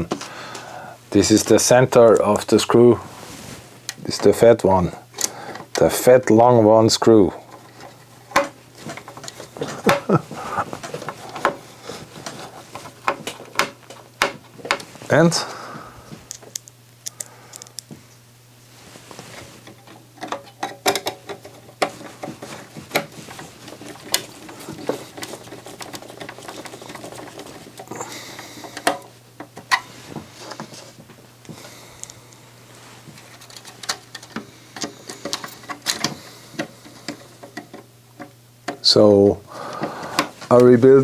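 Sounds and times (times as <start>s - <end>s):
small metallic rattles: 19.7s - 29.9s.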